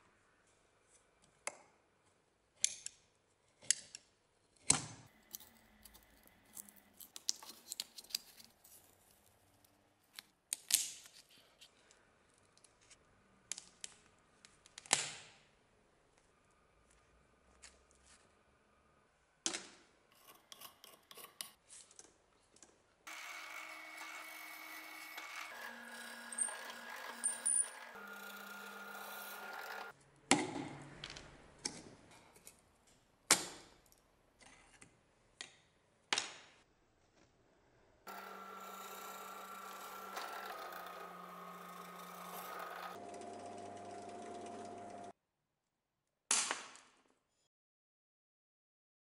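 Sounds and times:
electric drill drilling rivets: 0:23.1 - 0:29.9, 0:38.1 - 0:43.1.

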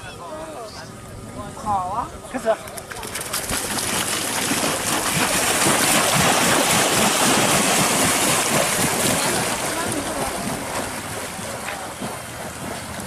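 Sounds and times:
water splashing and spraying: 0:02.8 - 0:13.0.

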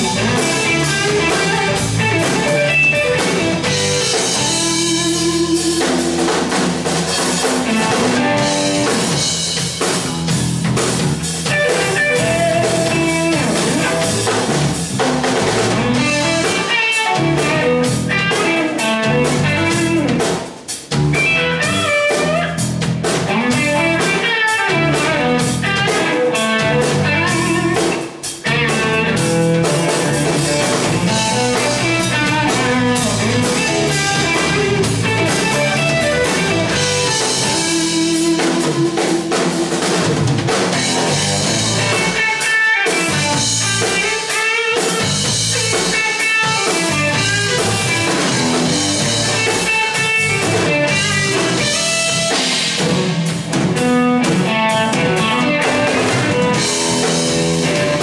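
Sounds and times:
drum kit with cymbals: 0:00.0 - 0:58.0
electric bass: 0:00.0 - 0:58.0
electric guitar lead: 0:00.0 - 0:58.0.

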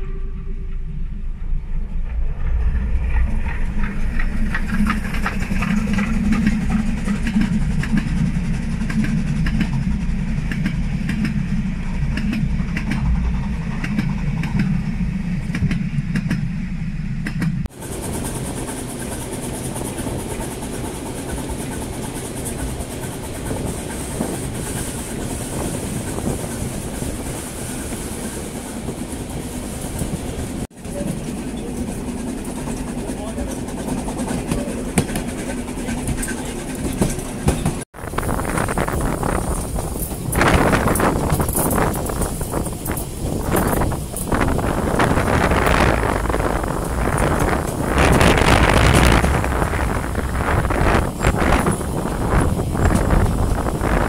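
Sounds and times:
steam train passing: 0:00.0 - 0:54.0
train rolling noise with hiss: 0:00.0 - 0:54.0
wheels clattering on rails: 0:00.6 - 0:16.6, 0:17.2 - 0:54.0.

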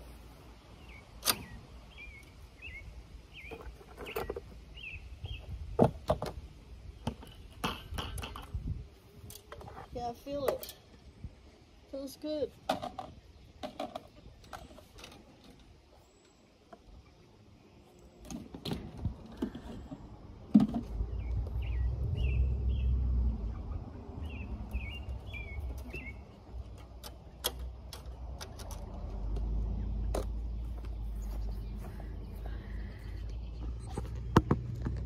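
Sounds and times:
bird chirps: 0:00.8 - 0:05.6, 0:21.1 - 0:26.7
wind buffeting microphone: 0:07.8 - 0:10.1.

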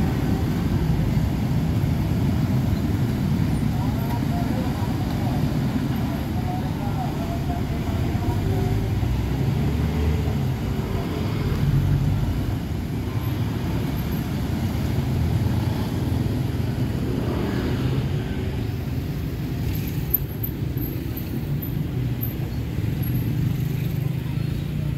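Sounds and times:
motorcycle and car engines passing: 0:00.0 - 0:24.9.

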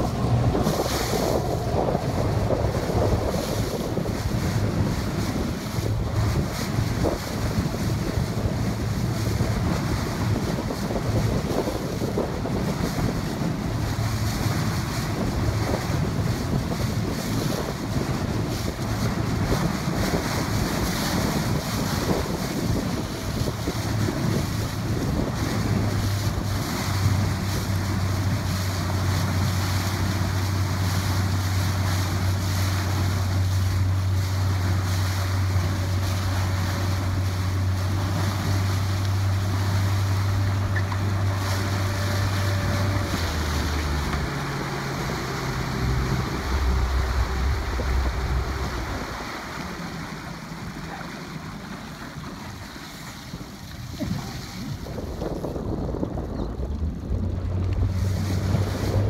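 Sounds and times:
boat engine low hum: 0:00.0 - 0:59.0
rushing water: 0:00.0 - 0:59.0
wind buffeting microphone: 0:00.0 - 0:59.0.

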